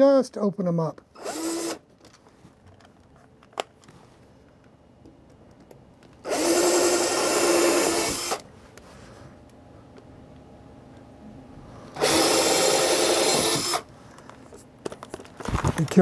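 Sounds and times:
cordless drill boring into wood: 1.2s - 1.8s, 6.2s - 8.4s, 12.0s - 13.9s.

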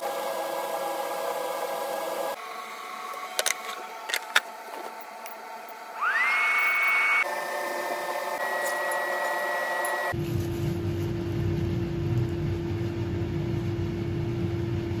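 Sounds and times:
kitchen appliance humming: 0.0s - 10.2s
fan whine and air rush: 0.0s - 15.0s.

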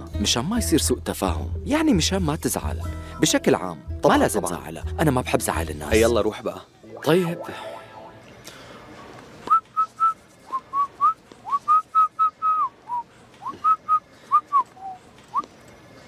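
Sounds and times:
man whistling a tune: 9.5s - 15.4s.

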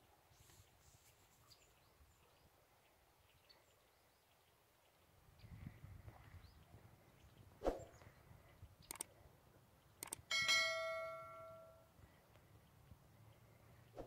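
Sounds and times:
mouse clicks: 8.9s - 9.1s, 10.0s - 10.2s
bright bell ding: 10.3s - 11.8s.

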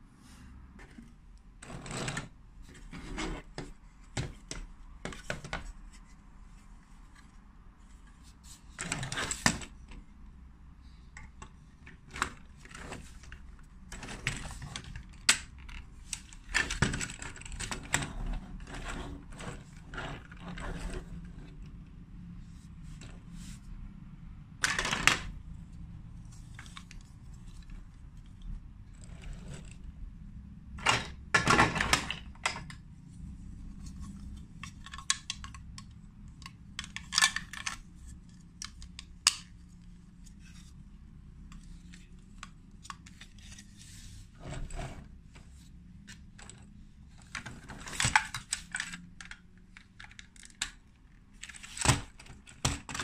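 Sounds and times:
plastic bricks clicking and clattering: 34.6s - 37.8s.

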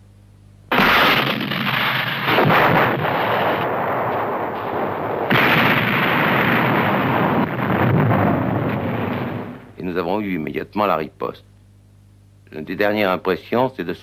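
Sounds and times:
explosions: 0.7s - 9.8s
gunfire: 0.7s - 9.8s.

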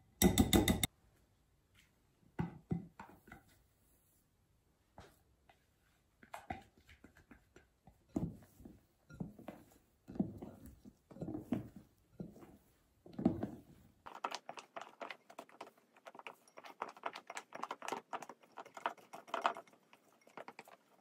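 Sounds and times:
spatula scraping and tapping glass: 8.1s - 12.6s, 14.1s - 21.0s
spatula strokes in glass bowl: 14.1s - 21.0s.

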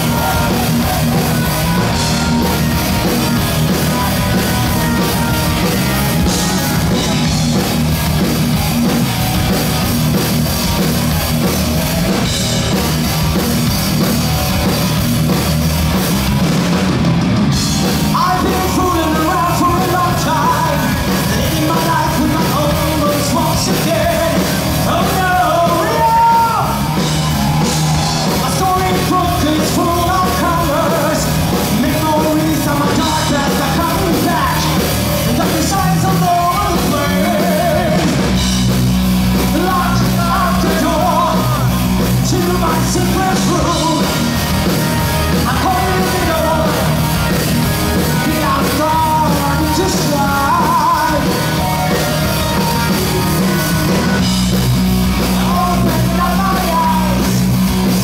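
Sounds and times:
heavy metal band playing: 0.0s - 58.0s
man singing: 18.0s - 26.9s, 28.2s - 38.4s, 39.4s - 52.0s, 55.2s - 57.5s.

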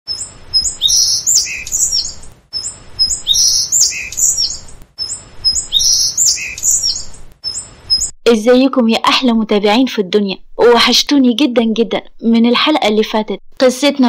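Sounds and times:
songbird chirping and whistling: 0.1s - 8.2s.

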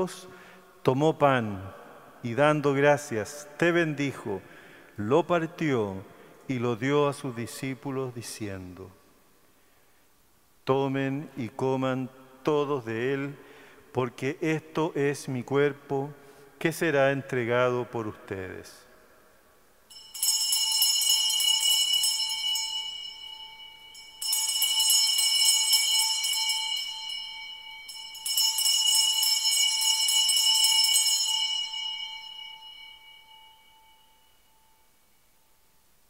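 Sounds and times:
altar bells ringing: 19.9s - 35.2s.

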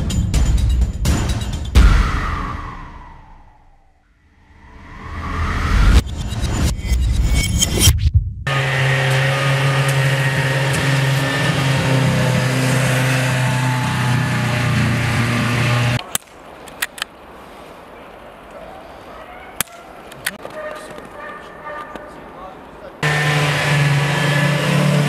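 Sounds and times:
snowmobile engine running: 8.5s - 16.0s, 23.0s - 25.0s
sharp clicks: 16.0s - 17.2s.

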